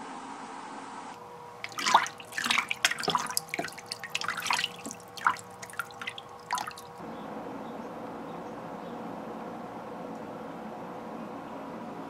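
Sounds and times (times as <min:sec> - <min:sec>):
faint steady hum: 0:00.0 - 0:12.0
water splashing and dripping: 0:01.6 - 0:07.0.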